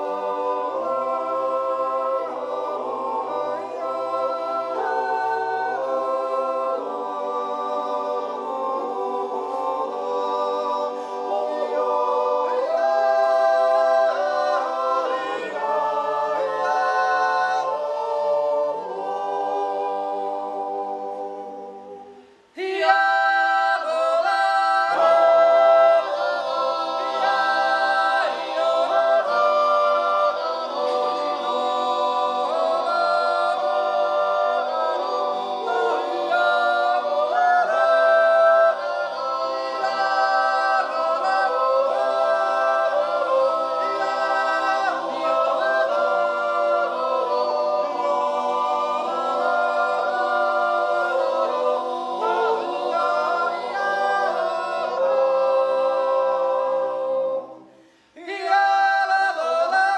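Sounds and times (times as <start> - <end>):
men's choir yodelling: 22.6 - 57.7.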